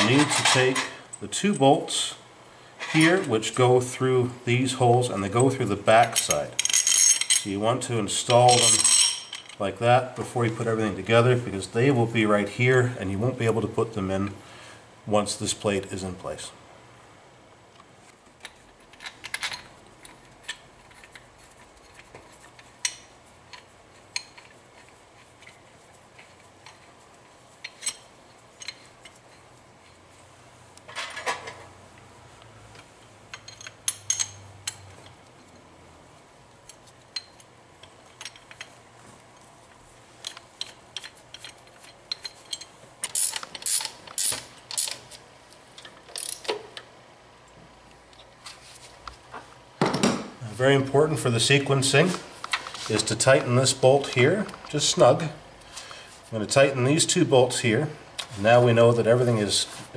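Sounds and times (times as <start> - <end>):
metal bolts clinking: 5.1 - 7.6, 8.2 - 9.7, 18.4 - 21.2, 27.6 - 30.0, 33.0 - 35.7, 36.6 - 38.8, 40.2 - 45.1, 45.8 - 46.8.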